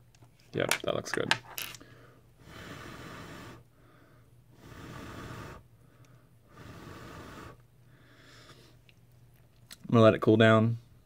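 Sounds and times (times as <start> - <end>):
person breathing: 1.7 - 8.8.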